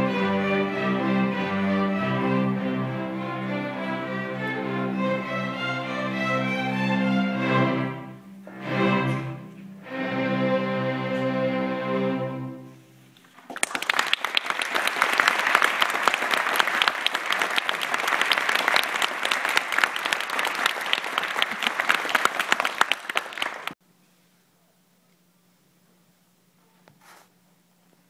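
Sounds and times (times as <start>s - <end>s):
string orchestra chord: 0.0s - 13.1s
audience applauding: 13.2s - 23.8s.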